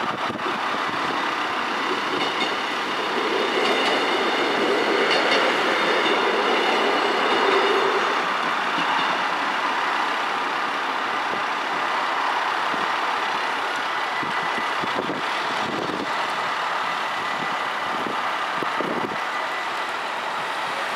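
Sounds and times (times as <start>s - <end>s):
steady rushing noise: 0.0s - 20.9s.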